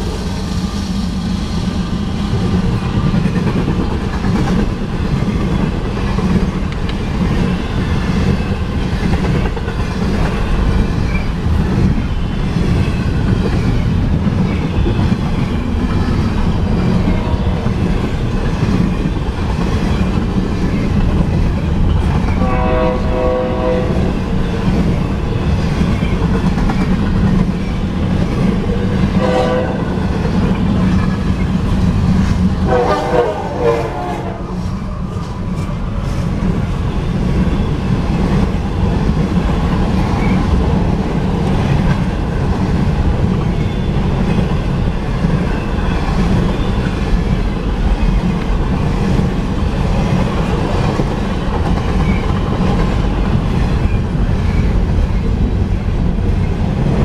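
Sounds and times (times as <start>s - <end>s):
train wheels rumbling and clattering: 0.0s - 57.0s
train horn: 17.0s - 17.8s, 22.4s - 24.2s, 29.1s - 30.1s, 32.6s - 34.7s.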